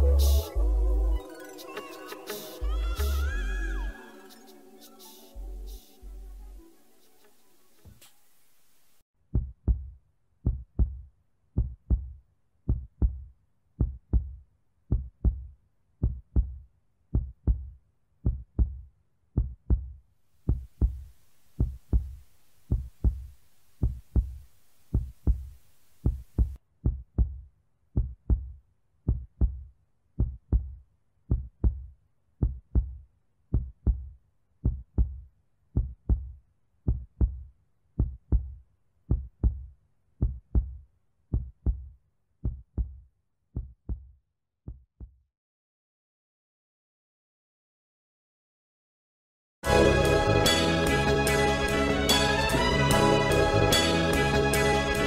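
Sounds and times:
faint hiss: 4.0 - 9.0
heartbeat double thump: 20.5 - 27.4.

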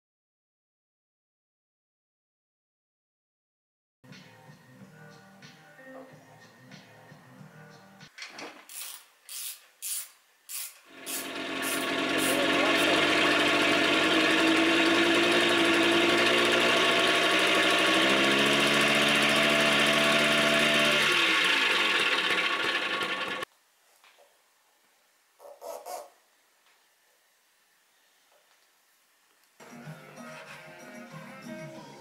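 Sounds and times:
two-stroke moped engine: 10.9 - 23.5
engine popping: 11.2 - 23.4.

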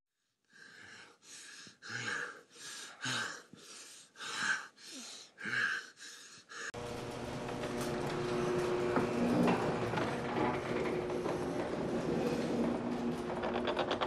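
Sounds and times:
person breathing hard: 0.4 - 6.8.

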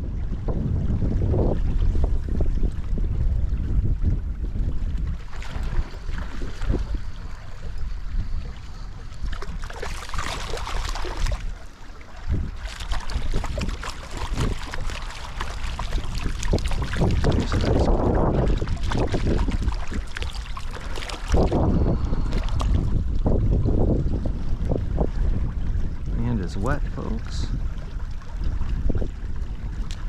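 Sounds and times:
wind buffeting microphone: 0.0 - 30.0
stream water rushing: 9.2 - 24.0.

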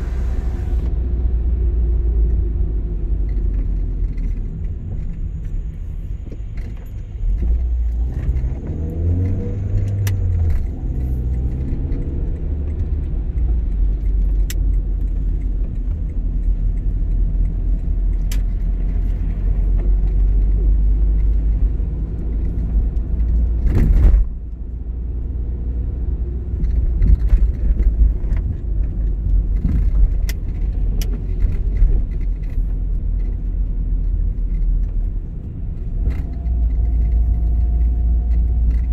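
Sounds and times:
car engine and tyres rumbling: 0.0 - 38.9
light clicks and rattles: 26.5 - 38.9.

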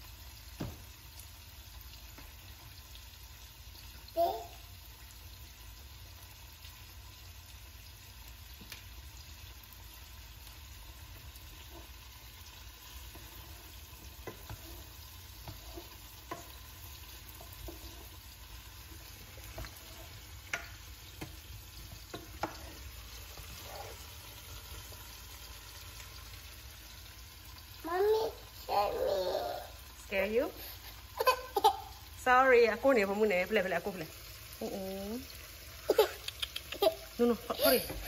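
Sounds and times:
green beans sizzling in a pan: 0.0 - 38.0.

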